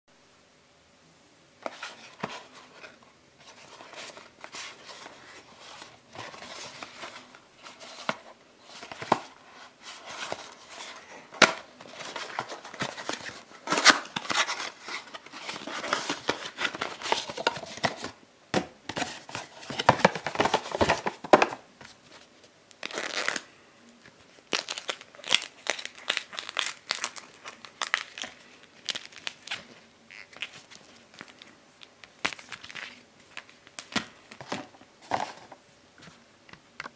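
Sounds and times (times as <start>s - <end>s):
cardboard rustling and scraping: 1.6s - 18.2s, 18.9s - 22.3s, 34.3s - 35.6s.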